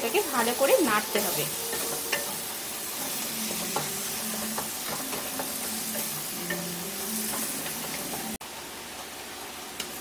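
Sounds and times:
frying sizzle: 0:00.0 - 0:10.0
spatula scraping and knocking pan: 0:00.4 - 0:08.4.

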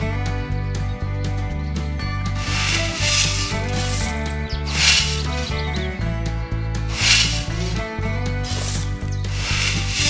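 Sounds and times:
music with low bass beat: 0:00.0 - 0:10.0
metal trowel scraping damp sand: 0:02.4 - 0:05.6, 0:06.9 - 0:07.8, 0:08.5 - 0:10.0.

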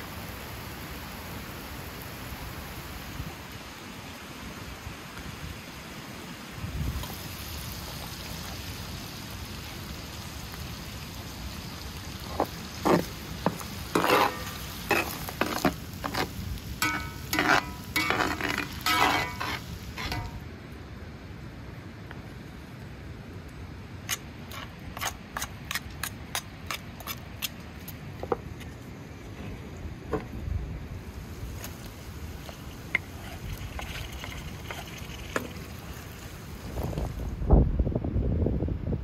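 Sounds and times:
meat sizzling in a pan: 0:07.0 - 0:20.4
ladle scraping a pan: 0:12.8 - 0:20.4, 0:32.4 - 0:35.5
ladle clanking on metal: 0:16.8 - 0:20.4.

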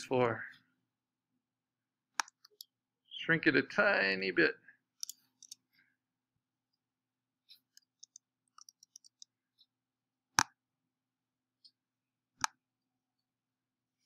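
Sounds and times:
computer mouse clicks: 0:02.2 - 0:02.7, 0:05.0 - 0:05.6, 0:07.5 - 0:09.3.

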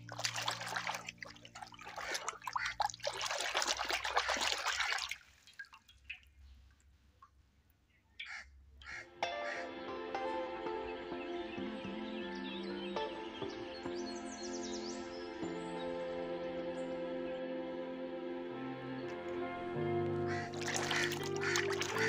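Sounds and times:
hand splashing water in a tub: 0:00.0 - 0:07.5, 0:20.3 - 0:22.0
water dripping: 0:00.0 - 0:09.6, 0:19.1 - 0:22.0.

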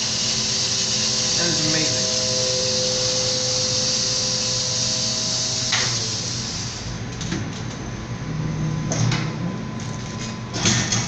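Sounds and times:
vacuum pump hiss with whine: 0:00.0 - 0:07.4.

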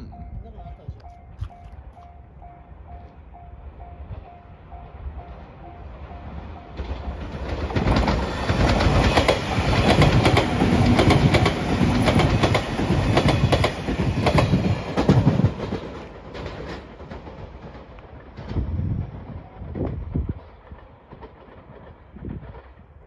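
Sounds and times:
train passing at speed: 0:00.1 - 0:23.0
wheels clicking over rail joints: 0:06.7 - 0:23.0.

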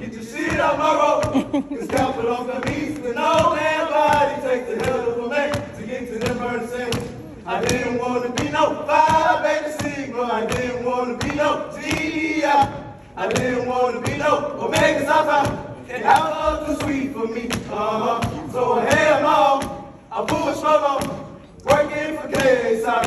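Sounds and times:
group chanting in unison: 0:00.0 - 0:23.0.

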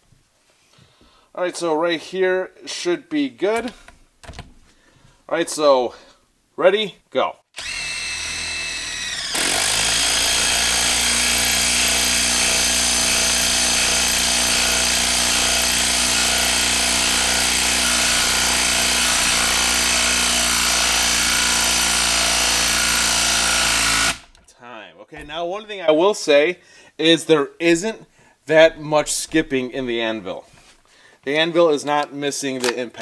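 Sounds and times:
impact driver hammering: 0:07.6 - 0:24.4.

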